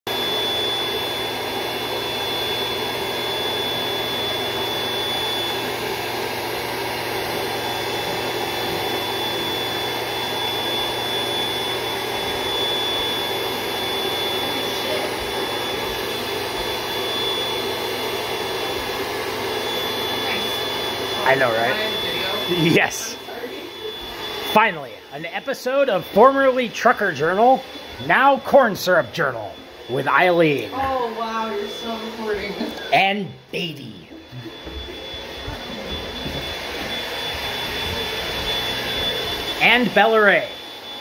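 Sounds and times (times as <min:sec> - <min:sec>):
electric air pump whirring: 0:00.1 - 0:41.0.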